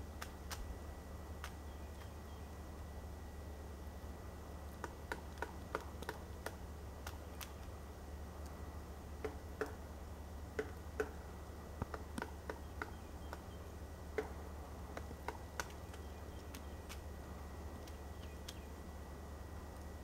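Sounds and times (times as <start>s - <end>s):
woodpecker tapping on bark: 4.8s - 7.8s, 9.2s - 9.8s, 10.5s - 11.2s, 11.8s - 17.0s, 17.8s - 18.7s.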